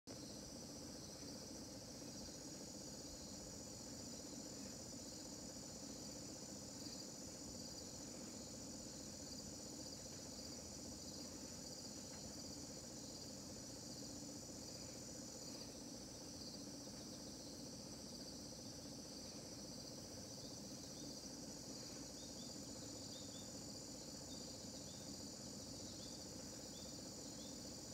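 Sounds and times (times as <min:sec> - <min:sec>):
insects chirping: 0:00.1 - 0:27.9.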